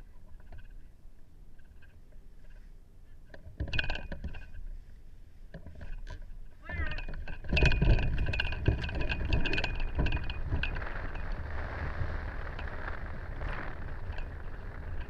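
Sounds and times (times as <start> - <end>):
wind noise on microphone: 5.6 - 15.0.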